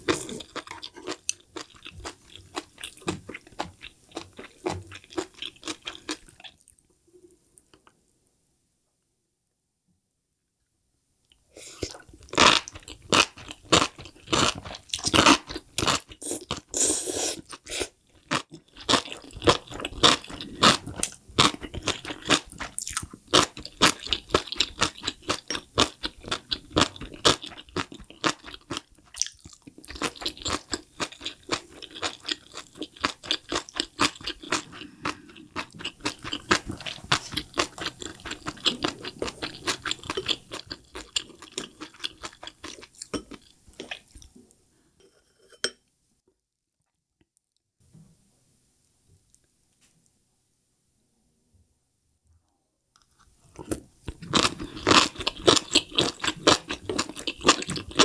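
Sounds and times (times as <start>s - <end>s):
crisp crunching chewing: 17.5s - 44.3s, 53.0s - 58.0s.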